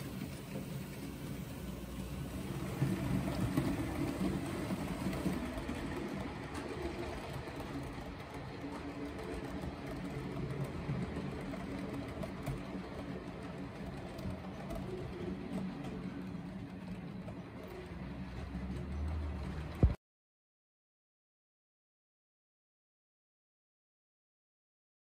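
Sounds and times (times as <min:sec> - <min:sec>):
model train wheels rolling on track: 0:00.0 - 0:20.0.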